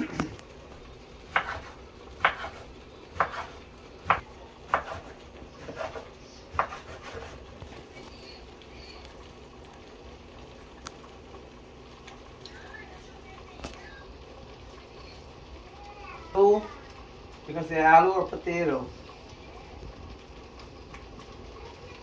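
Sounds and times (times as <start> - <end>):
knife chopping on cutting board: 1.3 - 7.4.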